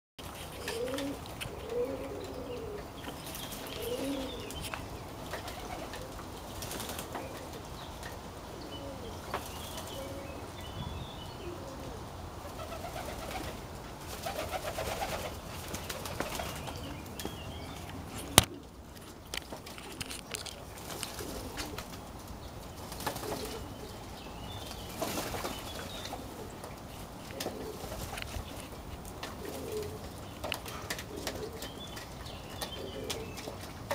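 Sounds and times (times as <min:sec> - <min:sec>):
pigeons cooing: 0:00.3 - 0:33.9
wing flapping: 0:03.0 - 0:07.6, 0:12.4 - 0:17.2, 0:17.8 - 0:24.0, 0:24.6 - 0:32.1.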